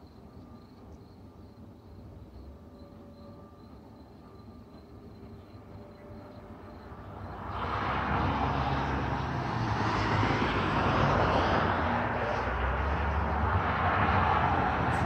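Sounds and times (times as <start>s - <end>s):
distant engine drone: 6.9s - 15.0s.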